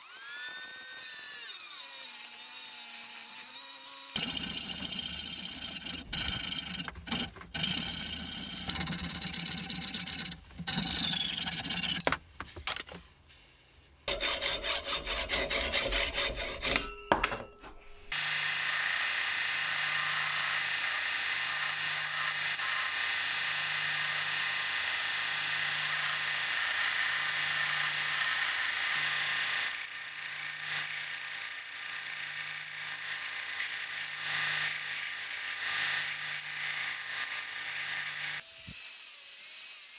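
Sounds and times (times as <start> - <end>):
saw cutting aluminium: 0.0 - 12.1, 14.1 - 17.0, 18.1 - 39.9
belt sander grinding metal: 0.0 - 12.2, 14.1 - 17.0.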